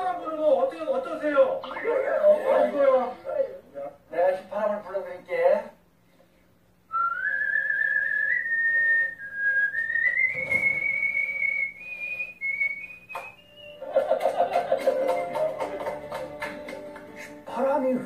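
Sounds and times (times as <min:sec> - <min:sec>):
voices: 0:00.0 - 0:05.8
man whistling a tune: 0:06.9 - 0:13.9.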